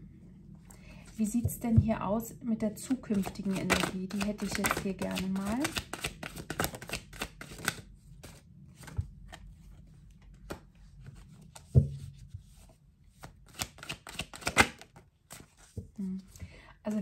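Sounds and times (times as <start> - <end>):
cards shuffling and snapping: 2.8 - 9.4, 13.2 - 15.7.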